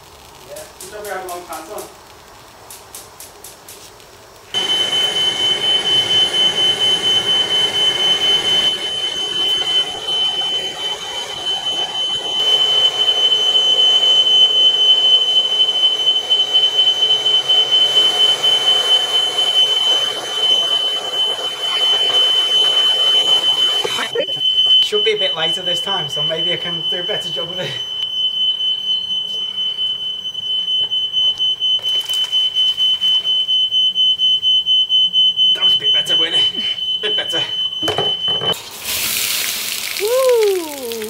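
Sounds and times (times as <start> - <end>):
blowtorch flame hissing: 0.0 - 14.8
smoke alarm high-pitched tone: 4.5 - 38.6, 40.0 - 41.0.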